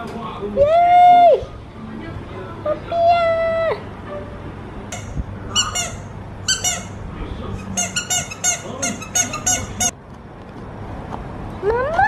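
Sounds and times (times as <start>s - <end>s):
squeaky dog toy squeaking: 4.9s - 9.9s.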